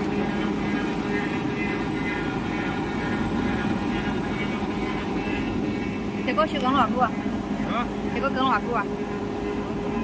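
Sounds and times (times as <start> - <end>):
paper machine droning: 0.0 - 7.3.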